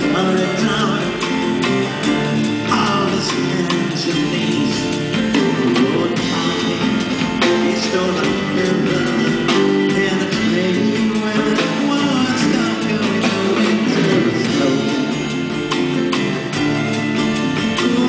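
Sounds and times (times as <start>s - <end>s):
electric guitar: 0.0s - 18.0s
live band playing instrumental: 0.0s - 18.0s.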